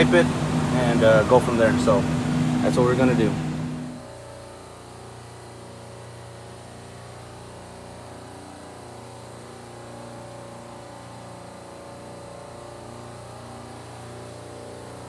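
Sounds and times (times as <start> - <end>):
refrigeration compressors humming: 0.0 - 15.0.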